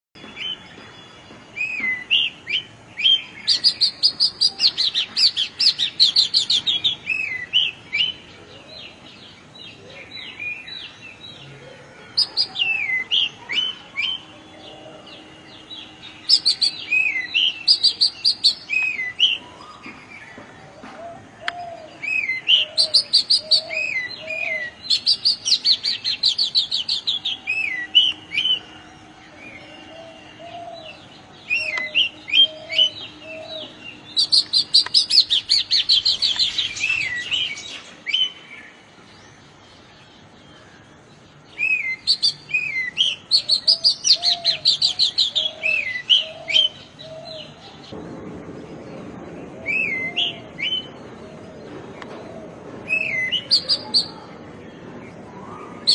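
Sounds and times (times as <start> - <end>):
bird singing whistles: 55.4 - 55.9.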